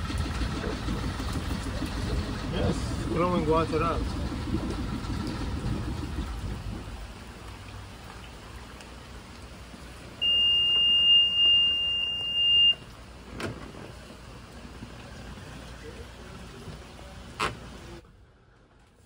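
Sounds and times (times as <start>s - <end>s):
diesel engine rumble: 0.0s - 19.0s
alarm buzzer high beep: 10.2s - 12.8s.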